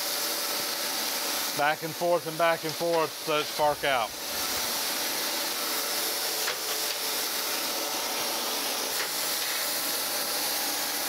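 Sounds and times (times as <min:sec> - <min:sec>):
surface grinder hissing: 0:00.0 - 0:11.0.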